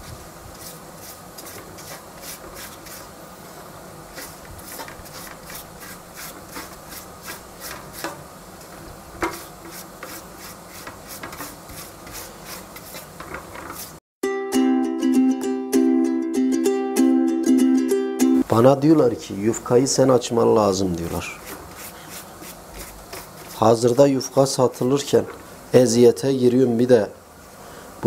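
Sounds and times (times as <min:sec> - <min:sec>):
pastry brush swishing on dough: 0:00.0 - 0:03.1, 0:04.1 - 0:08.1, 0:09.2 - 0:14.0, 0:21.0 - 0:24.6.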